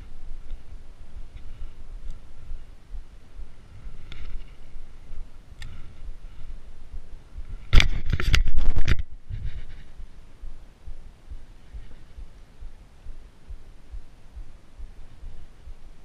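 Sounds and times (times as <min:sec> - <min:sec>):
soft ticks: 0:00.0 - 0:02.3, 0:05.6 - 0:06.2
low wind rumble: 0:00.0 - 0:16.0
clothing scraping over microphone: 0:07.5 - 0:10.1.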